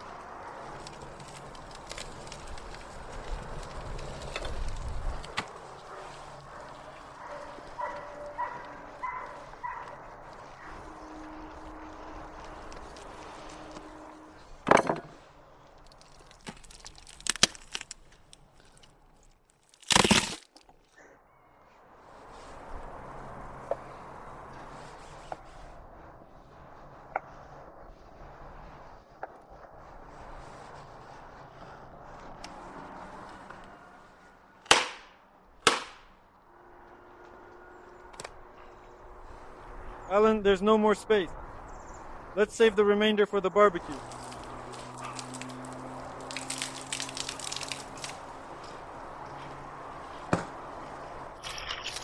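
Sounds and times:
ribs cracking: 0.0s - 14.0s, 15.7s - 20.8s, 43.8s - 48.9s
loud crunch: 0.0s - 21.0s, 43.8s - 48.8s
chopping blows on wood: 34.7s - 36.1s.

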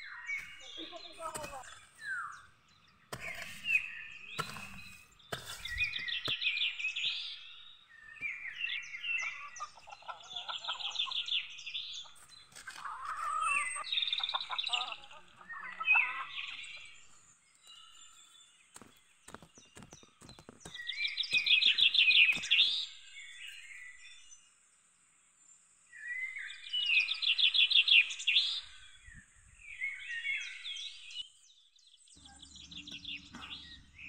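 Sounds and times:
songbird singing: 0.0s - 34.0s
hoe chopping into ground: 3.1s - 6.6s.

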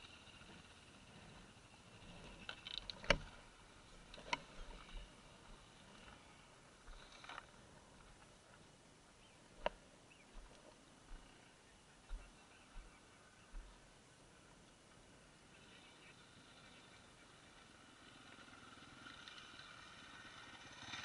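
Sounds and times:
sharp clicks and knocks: 2.4s - 3.4s.

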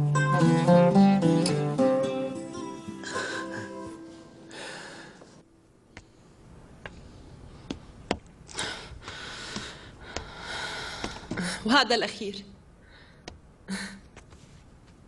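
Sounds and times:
guitar music: 0.0s - 4.5s
soft rustling: 14.1s - 15.0s.

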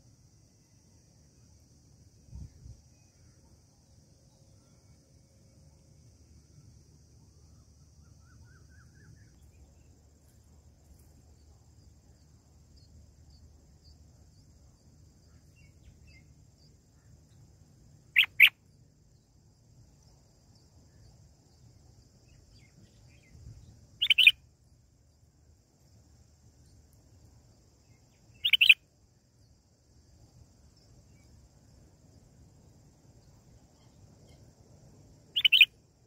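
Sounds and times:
faint low hum: 0.0s - 36.0s
birds chirping: 18.2s - 18.5s, 28.4s - 28.8s, 35.4s - 35.7s.

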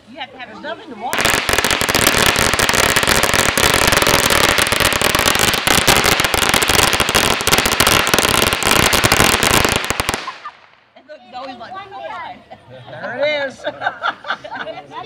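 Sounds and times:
firecrackers cracking: 1.1s - 11.0s.

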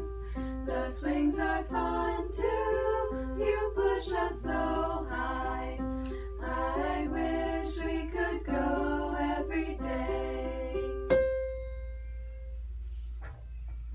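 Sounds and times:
keyboard accompaniment: 0.0s - 13.9s
girls singing together: 0.6s - 11.1s.

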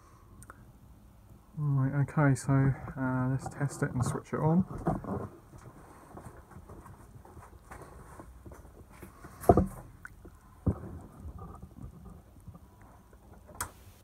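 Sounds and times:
handling noise: 2.4s - 13.6s.

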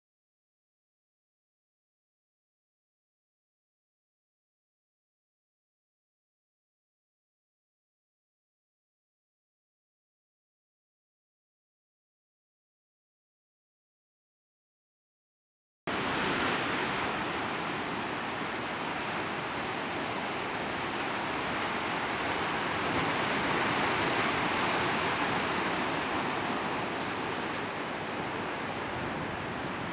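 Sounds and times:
surf washing over rocks: 15.9s - 29.9s.

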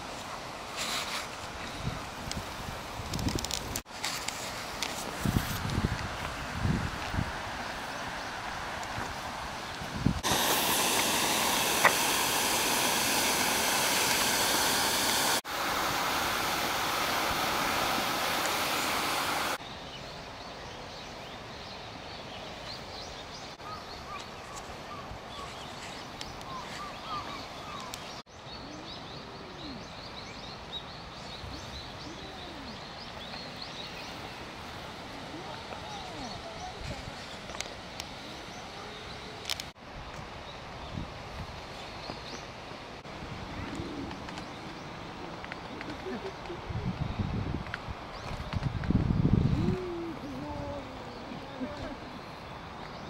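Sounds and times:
loud steady rushing hiss: 0.0s - 53.0s.

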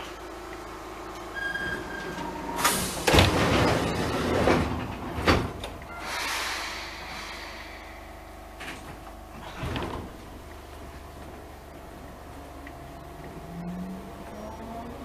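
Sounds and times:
train doors hissing: 1.3s - 10.5s
train door thump: 2.2s - 7.3s, 8.6s - 10.3s.

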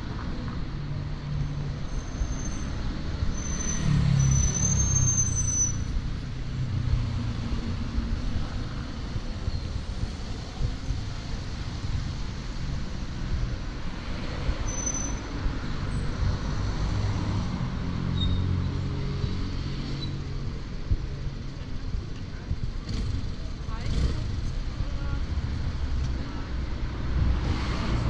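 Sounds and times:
road traffic rumble: 0.0s - 28.0s.

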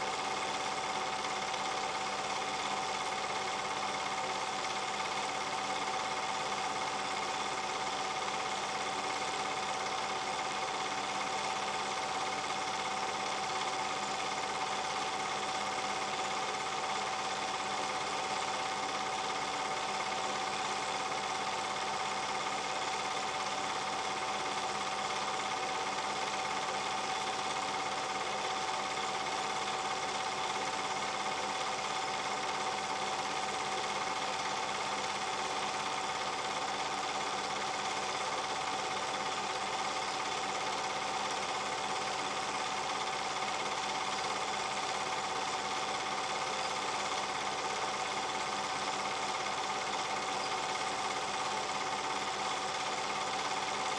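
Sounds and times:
film projector running: 0.0s - 53.9s.

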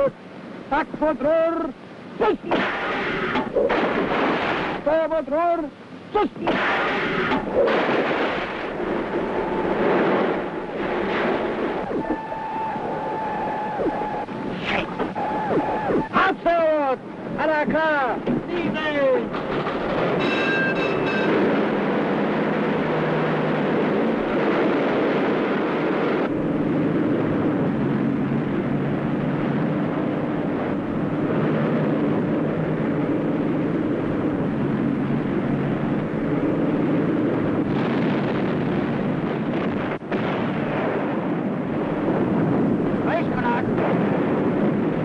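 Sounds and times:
boat engines roaring: 7.2s - 40.4s.

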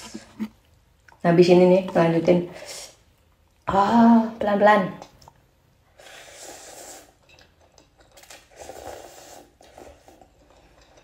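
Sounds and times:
soft chewing: 0.0s - 1.3s, 6.1s - 11.0s
slurping noodles: 5.9s - 11.0s.

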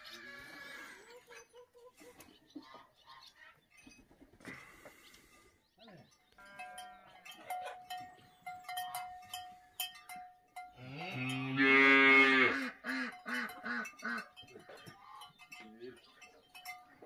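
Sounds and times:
cow mooing: 10.8s - 13.9s.

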